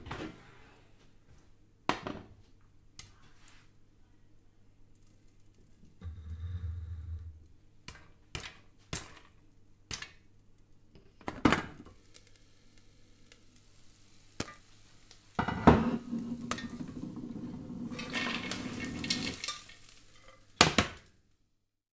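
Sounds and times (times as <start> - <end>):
popcorn kernels popping: 7.8 - 10.3.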